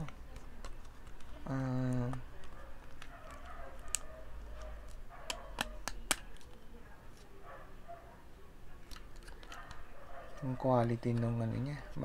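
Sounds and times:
plastic toy clicks and taps: 5.3 - 6.4.

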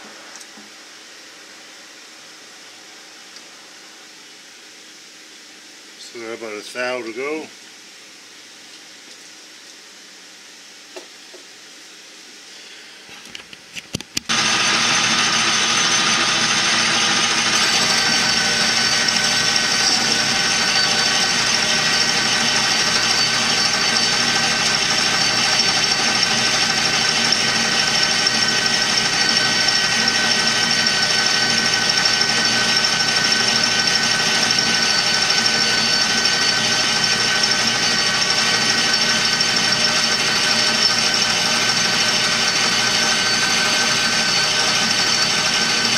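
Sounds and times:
lathe motor whining: 14.3 - 45.9.

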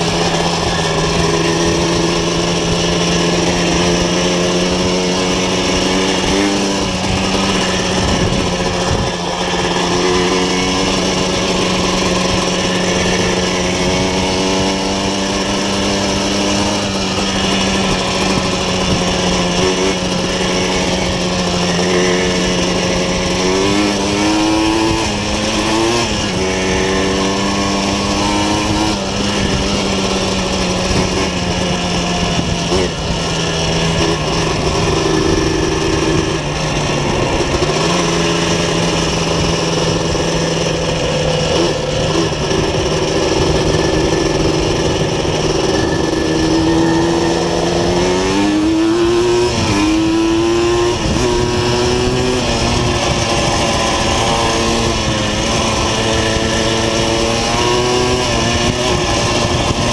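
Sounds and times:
two-stroke engine revving: 0.0 - 59.9.

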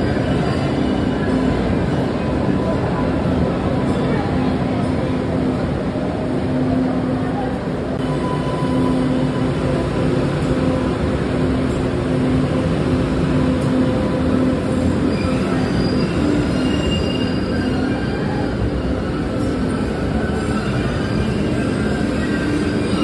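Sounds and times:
train rumbling past: 0.0 - 23.0
wheel squeals: 15.0 - 19.6.

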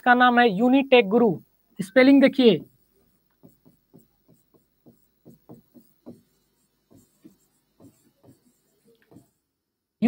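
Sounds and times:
stylus tapping on touchscreen: 2.6 - 9.4.

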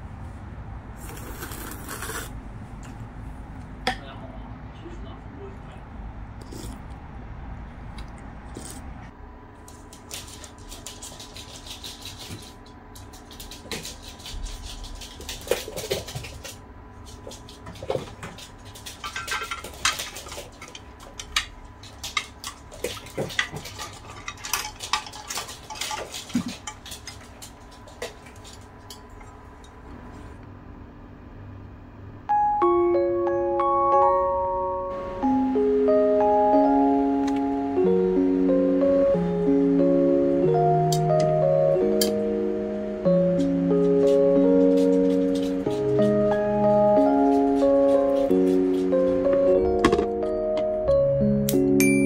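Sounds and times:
faint steady hum: 14.1 - 47.4
dishes and cutlery clinking: 18.8 - 29.8.

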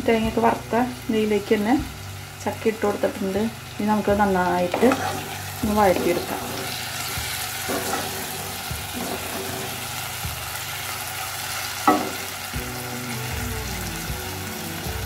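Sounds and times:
fruit sizzling in a pan: 0.0 - 15.0
wooden spatula stirring in pan: 4.7 - 10.0.

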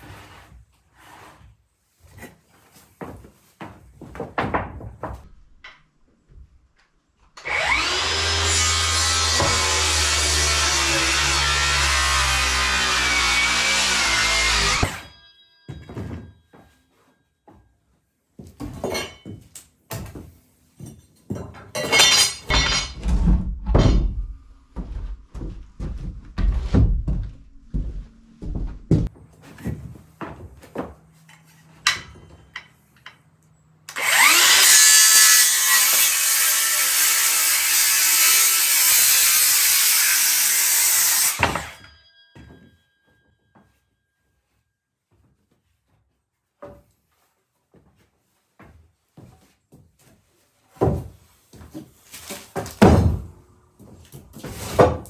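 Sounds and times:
circular saw cutting board: 7.4 - 15.2, 33.9 - 42.0.

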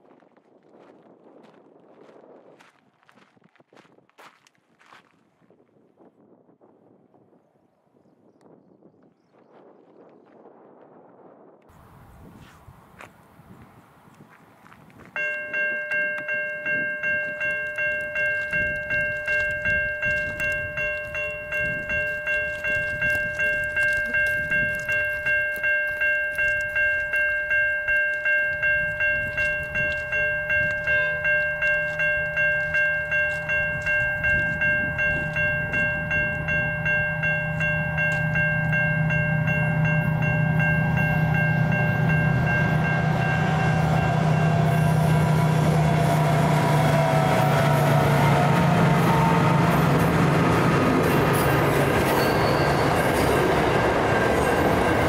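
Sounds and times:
freight train rumble: 10.4 - 55.0
level crossing bell ringing: 15.2 - 55.0.

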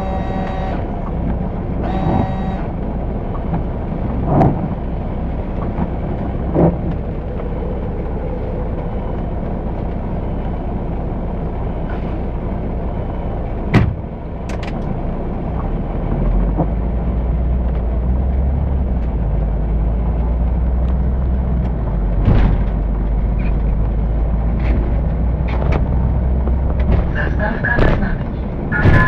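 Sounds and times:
bus engine running: 0.0 - 29.0
sharp knock from bus body: 13.7 - 14.0.

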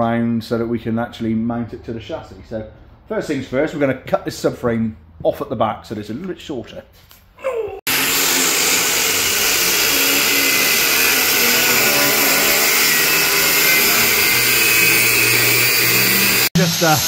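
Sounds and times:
angle grinder cutting steel: 7.9 - 17.0.

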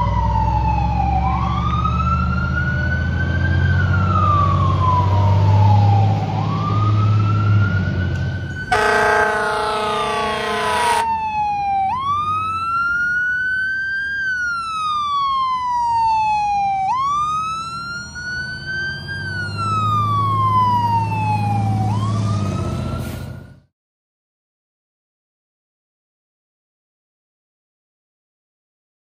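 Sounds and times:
air horn blasting: 8.6 - 11.1.

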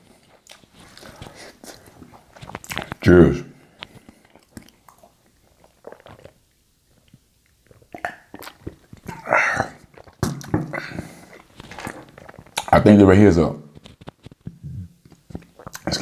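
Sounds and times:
soft eating sounds: 0.0 - 13.0, 13.7 - 16.0
man gulping a drink: 3.9 - 12.7, 14.5 - 16.0
short vocal sound: 14.6 - 15.0.

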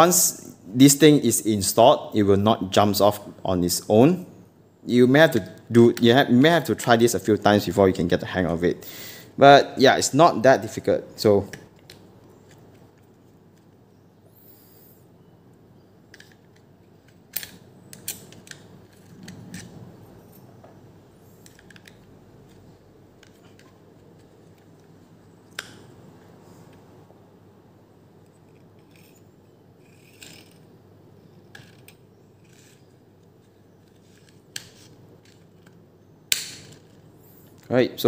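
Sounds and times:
plastic and metal parts clicking: 16.1 - 19.8, 21.4 - 24.9, 31.5 - 37.7.

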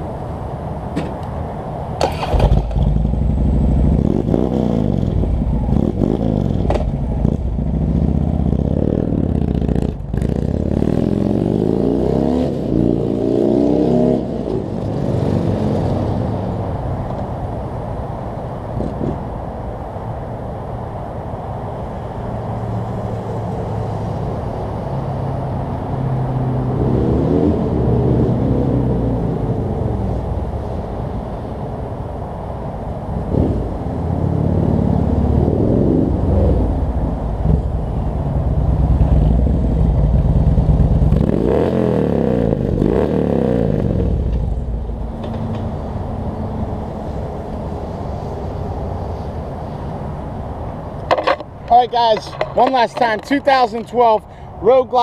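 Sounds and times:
motorcycle accelerating: 2.0 - 17.2, 22.5 - 30.9, 33.1 - 52.7.

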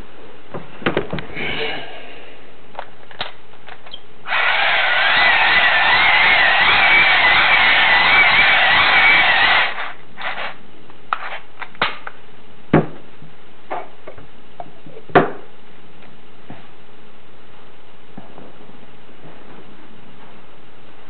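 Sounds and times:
crank dynamo whirring: 4.3 - 10.6.

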